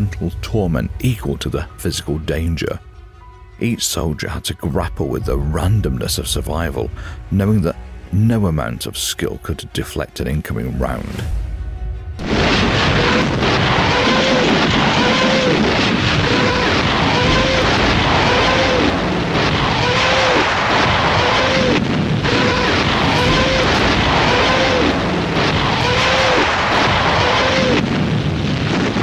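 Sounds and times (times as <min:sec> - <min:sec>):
rising and falling wail: 0:12.2 - 0:29.0
rocket launches and blasts rumbling: 0:12.2 - 0:29.0.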